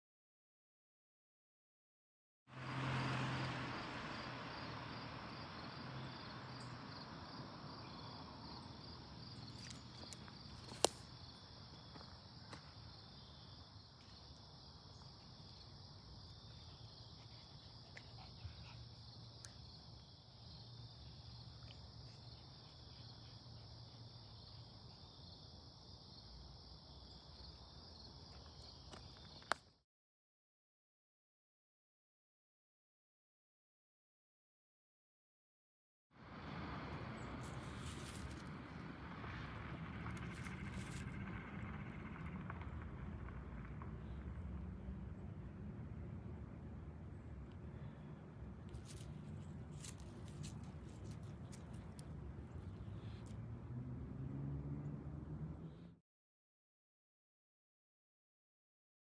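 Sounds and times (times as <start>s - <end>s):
faint outdoor background noise: 2.5s - 29.8s, 36.2s - 56.0s
insect chorus trilling: 3.7s - 29.5s.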